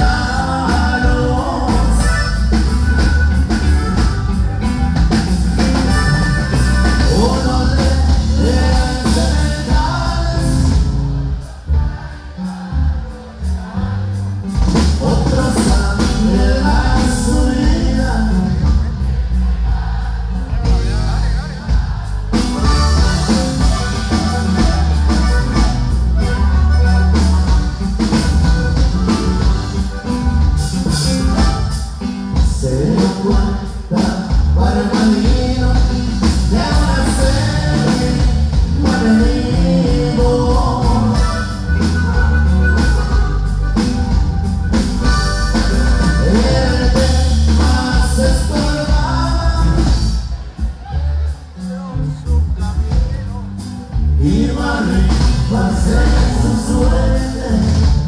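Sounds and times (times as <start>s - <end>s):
person singing: 0.0s - 4.1s, 5.8s - 11.1s, 11.7s - 19.2s, 30.8s - 42.6s, 45.5s - 52.9s, 54.2s - 58.0s
acoustic guitar: 0.0s - 58.0s
drums: 0.0s - 58.0s
electric bass: 0.0s - 58.0s
live band through a pa: 0.0s - 58.0s.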